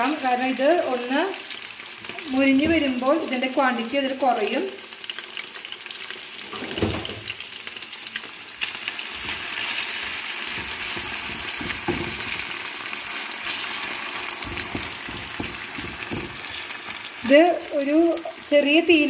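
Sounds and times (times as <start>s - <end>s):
potatoes sizzling in hot oil: 0.0s - 19.0s
low knocks in frying pan: 10.5s - 12.5s, 14.4s - 16.6s.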